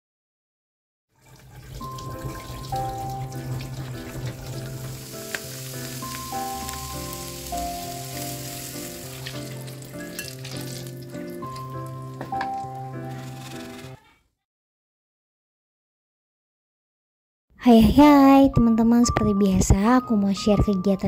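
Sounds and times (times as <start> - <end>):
food frying in hot oil: 1.1 - 13.3.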